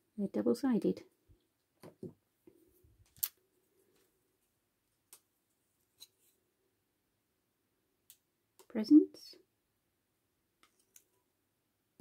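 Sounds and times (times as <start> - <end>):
small plastic pieces clicking: 3.1 - 3.4.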